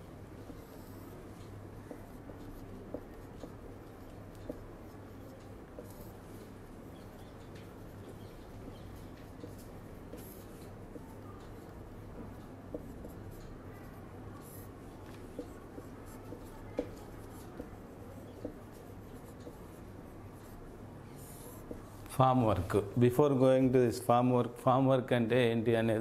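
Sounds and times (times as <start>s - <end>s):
marker pen scratching on whiteboard: 0.0s - 22.2s.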